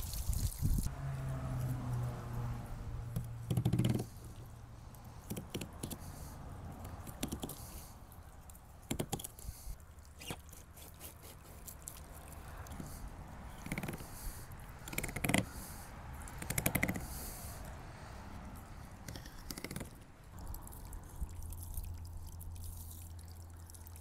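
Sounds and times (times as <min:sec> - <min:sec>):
knife scraping along fish bones: 0:10.2 - 0:11.8.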